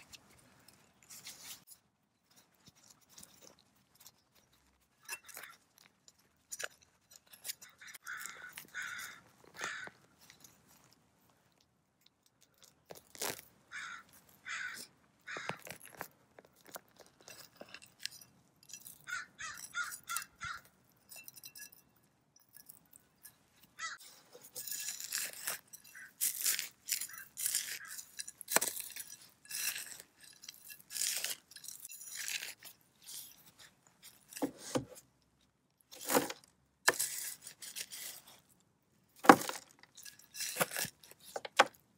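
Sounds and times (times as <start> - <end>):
crows cawing: 7.6 - 10.0, 13.7 - 15.6, 19.1 - 20.6, 23.8 - 24.0
trowel scraping through dry soil: 23.8 - 35.0, 35.9 - 38.5, 39.3 - 41.7.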